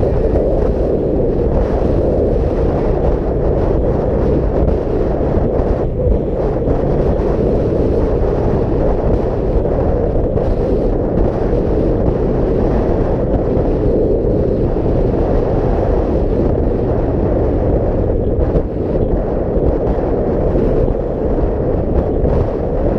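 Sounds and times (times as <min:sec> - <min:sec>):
motorcycle engine drone: 0:00.0 - 0:22.9
wind over microphone: 0:00.0 - 0:22.9.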